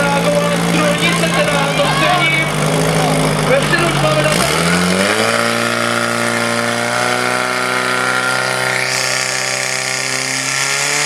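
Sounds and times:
fire pump engine running: 0.0 - 11.0.

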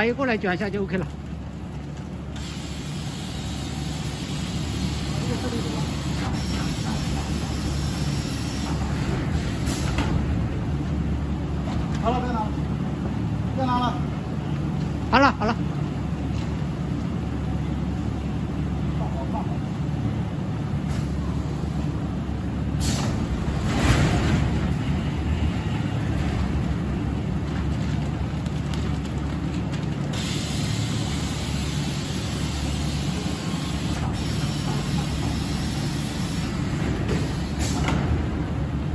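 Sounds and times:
vacuum packing machine hum: 1.7 - 10.9, 26.7 - 38.6.

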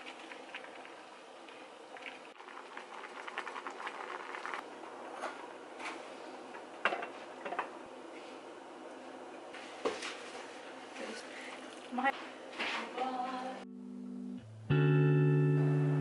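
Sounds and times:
pot of water bubbling: 0.0 - 5.7
dense crackle: 2.0 - 4.6.

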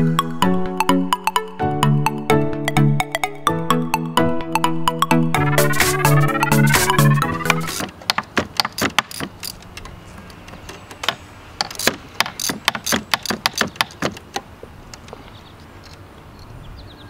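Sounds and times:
ratchet clicking: 8.6 - 9.7, 11.6 - 13.9.

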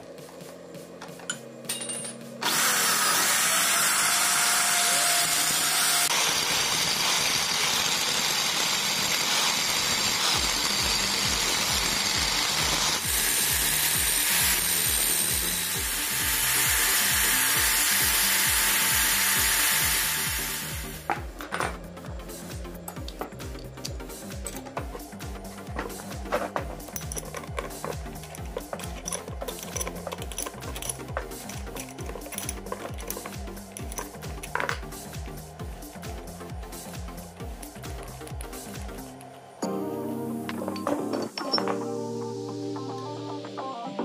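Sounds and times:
angle grinder grinding metal: 2.4 - 36.2.

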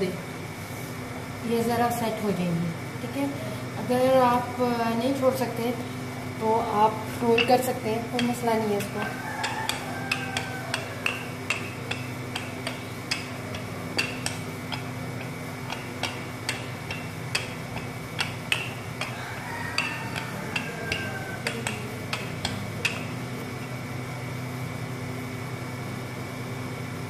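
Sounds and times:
rolling pin clicking and knocking: 7.4 - 23.8.

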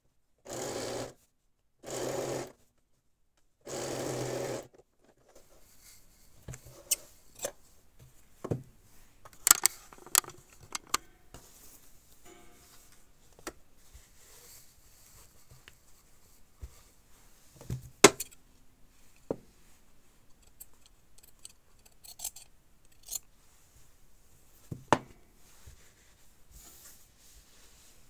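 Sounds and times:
sharp metallic clicks: 9.4 - 11.1.

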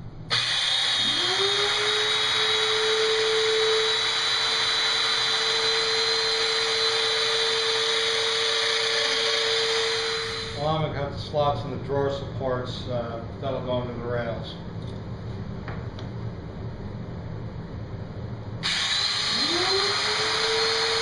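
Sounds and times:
dust extractor hum: 0.0 - 21.0
power joiner high whine: 0.3 - 10.6, 18.6 - 21.0.

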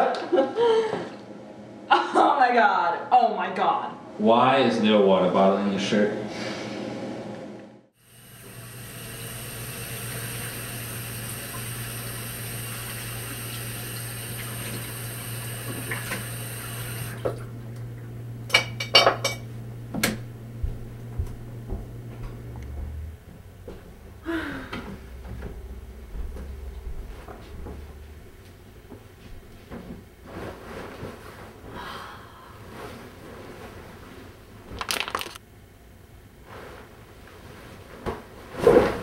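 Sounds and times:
sink tap running: 8.0 - 17.5.

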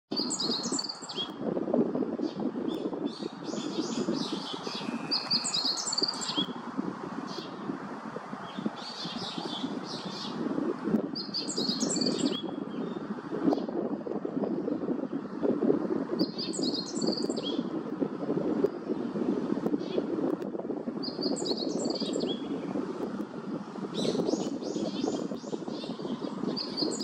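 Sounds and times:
small songbirds chirping: 0.1 - 1.5, 2.1 - 6.6, 8.4 - 10.5, 11.1 - 13.8, 14.4 - 17.8, 21.0 - 22.9, 23.7 - 27.0.

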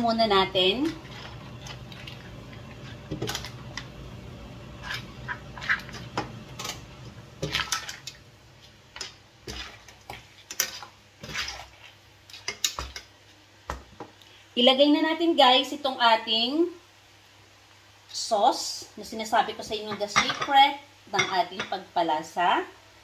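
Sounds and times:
metal utensils scraping a pan: 9.0 - 13.1.

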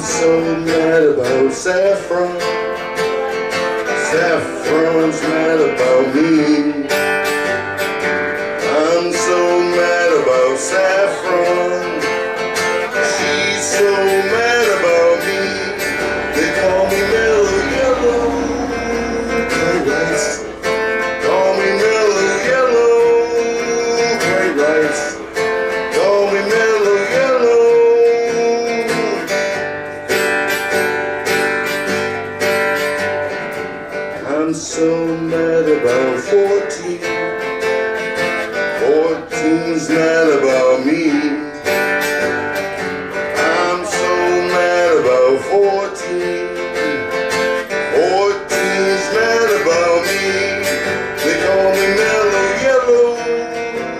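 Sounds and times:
lead guitar bending notes: 0.0 - 34.2, 34.8 - 53.9
strummed guitar chords: 0.0 - 53.9
percussion hits: 14.1 - 22.2.

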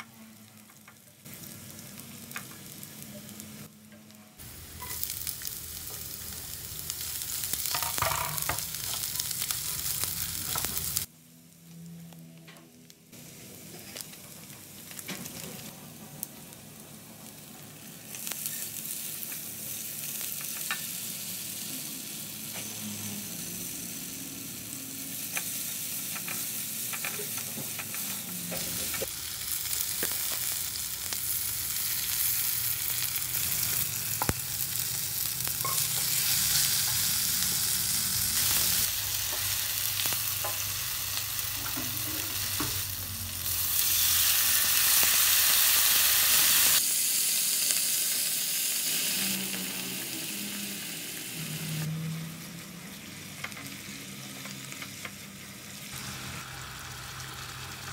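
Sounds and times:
garlic sizzling in oil: 4.4 - 11.1, 13.2 - 57.9.

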